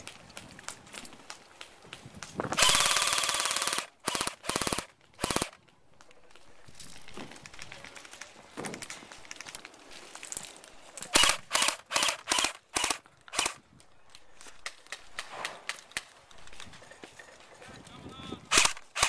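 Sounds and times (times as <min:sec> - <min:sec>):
electric rifle firing shots: 0:02.6 - 0:05.6, 0:11.2 - 0:13.6, 0:18.5 - 0:19.0.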